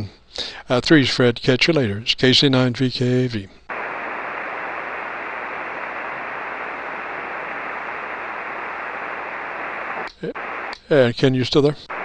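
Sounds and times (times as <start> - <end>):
shortwave receiver hiss: 3.7 - 12.0.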